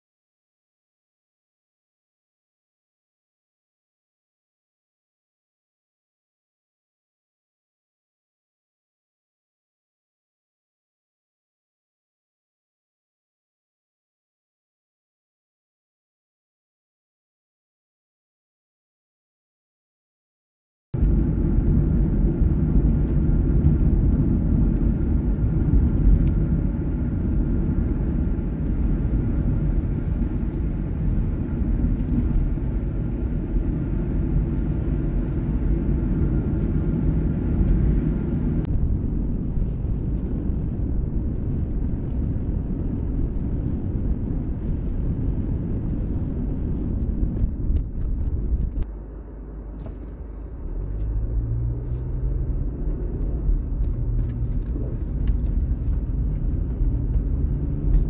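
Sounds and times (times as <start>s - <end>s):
vehicle driving on a highway: 21.0s - 58.0s.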